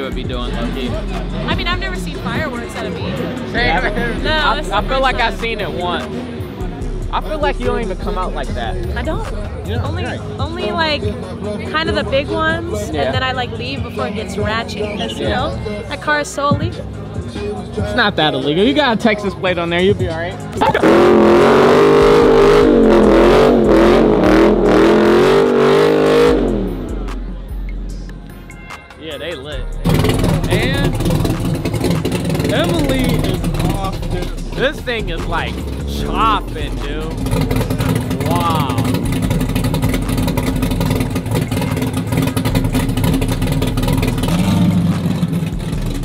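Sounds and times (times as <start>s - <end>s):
car engine revving: 0.0s - 28.3s, 29.5s - 46.0s.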